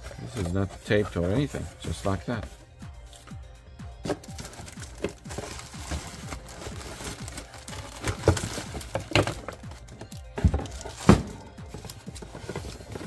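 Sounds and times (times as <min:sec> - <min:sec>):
cardboard packaging rustling: 0:00.0 - 0:03.2, 0:04.0 - 0:13.0
thumps on cardboard box: 0:08.0 - 0:09.6.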